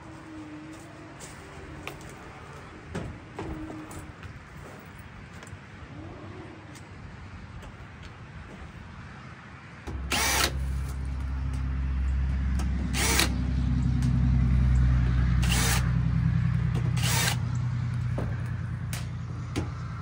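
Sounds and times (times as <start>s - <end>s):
low machine hum: 5.8s - 20.0s
drill whirring: 9.9s - 10.9s, 12.9s - 13.4s, 15.4s - 15.9s, 17.0s - 17.4s.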